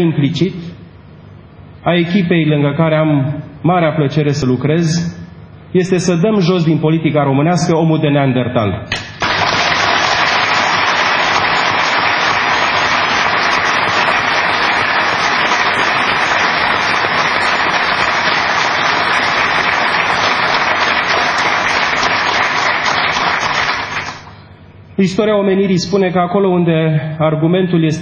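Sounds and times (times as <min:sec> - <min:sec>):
audience applauding: 0:09.2 - 0:24.4.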